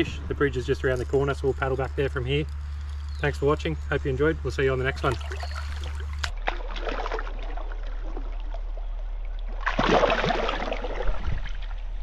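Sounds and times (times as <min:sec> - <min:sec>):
stream rippling: 0:00.0 - 0:12.0
water splashing around hands: 0:05.0 - 0:08.8, 0:09.4 - 0:11.8.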